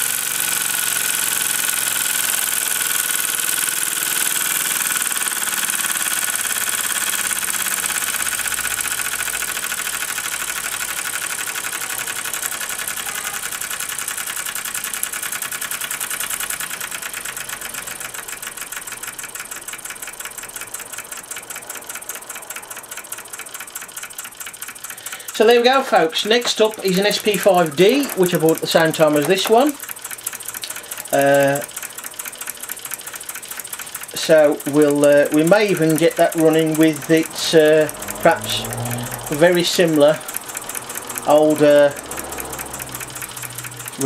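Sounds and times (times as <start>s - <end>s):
toy steam engine running fast: 0.0s - 44.0s.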